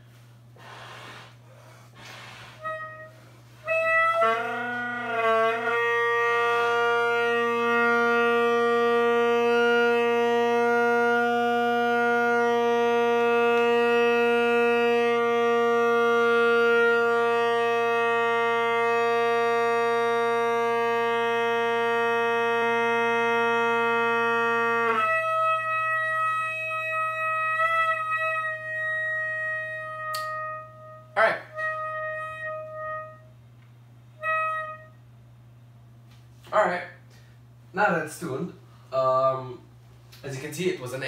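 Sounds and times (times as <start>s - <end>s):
bagpipe drone: 2.6s - 33.2s.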